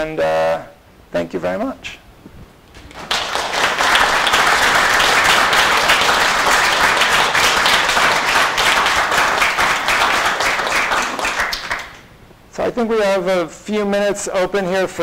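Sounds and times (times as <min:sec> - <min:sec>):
audience applauding: 0:02.8 - 0:12.1.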